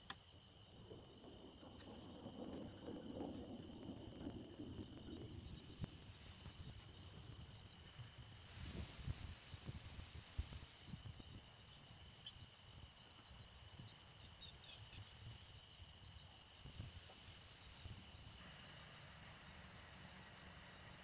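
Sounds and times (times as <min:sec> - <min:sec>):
insects trilling: 0:00.0 - 0:21.0
low uneven rumble: 0:00.6 - 0:12.2.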